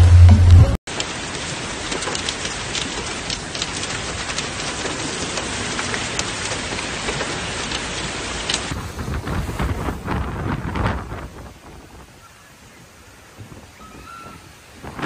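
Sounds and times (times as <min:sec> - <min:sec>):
rain crackling on microphone: 0:00.0 - 0:15.0
wind rushing: 0:08.7 - 0:12.2, 0:13.3 - 0:15.0.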